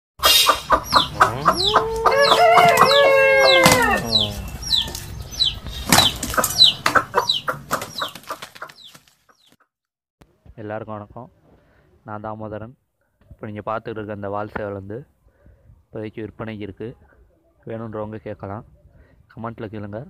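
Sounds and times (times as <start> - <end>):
rooster crowing: 0.8 - 5.7
rooster flapping wings: 1.9 - 2.9, 3.5 - 4.1, 4.8 - 6.7, 7.5 - 9.3.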